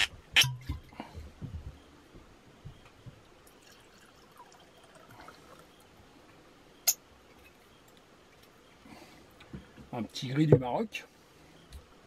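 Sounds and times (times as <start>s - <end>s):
wine pouring into a glass: 3.4s - 5.8s.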